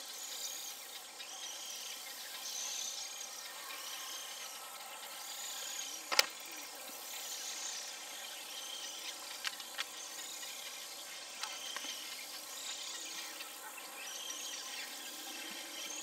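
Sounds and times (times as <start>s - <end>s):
insect chorus buzzing: 0.0s - 16.0s.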